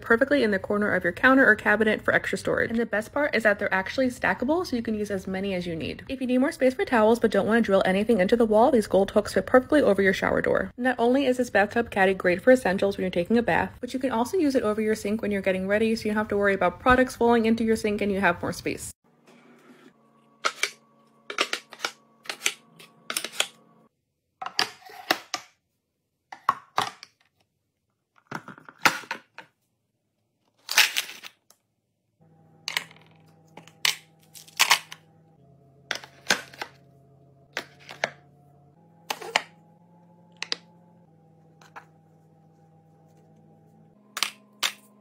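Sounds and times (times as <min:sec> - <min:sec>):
faint background music: 0:00.0 - 0:19.0.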